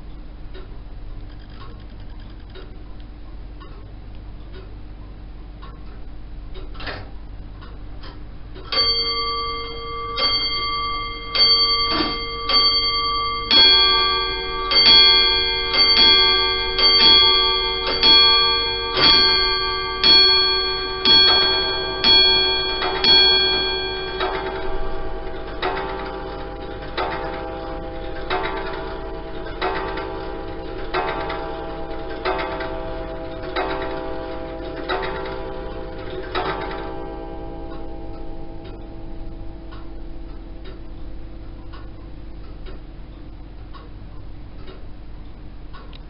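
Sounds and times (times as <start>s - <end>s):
wall clocks ticking: 0.0s - 46.0s
lower-pitched clock bell striking: 8.6s - 44.8s
clock bell striking: 8.7s - 42.8s.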